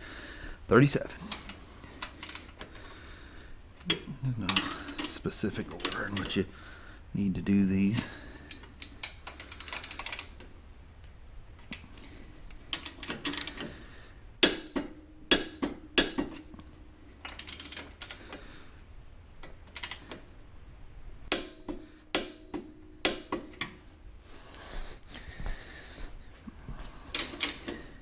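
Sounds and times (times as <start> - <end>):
torque wrench metallic clicks: 2.0 - 2.6, 8.5 - 10.4, 12.7 - 13.7, 17.2 - 18.2, 19.4 - 20.1
torque wrench ratcheting: 2.0 - 2.6, 8.5 - 10.4, 12.7 - 13.7, 17.2 - 18.2, 19.7 - 20.1.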